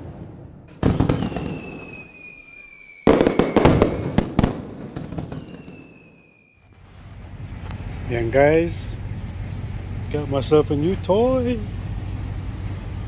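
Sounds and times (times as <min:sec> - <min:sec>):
fireworks bangs: 0:00.0 - 0:06.9
fireworks crackling: 0:00.0 - 0:07.1
falling high whistle: 0:01.2 - 0:04.2, 0:05.2 - 0:06.8.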